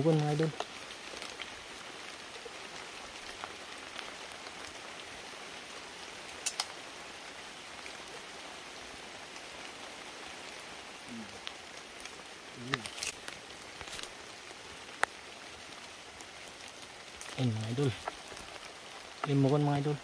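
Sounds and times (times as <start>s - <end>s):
light rain falling: 0.0s - 20.0s
sharp clicks: 6.4s - 6.8s.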